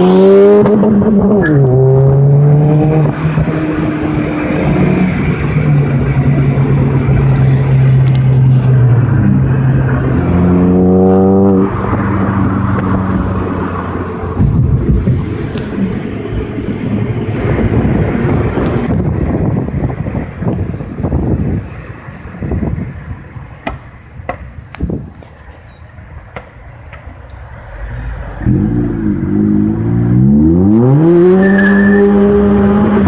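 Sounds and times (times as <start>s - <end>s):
car engine revving with gear changes: 0.0s - 16.1s, 27.7s - 33.0s.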